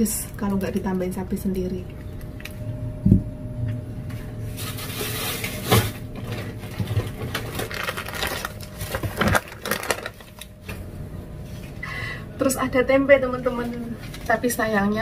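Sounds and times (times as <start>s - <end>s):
plastic packaging crinkling: 4.5s - 10.7s.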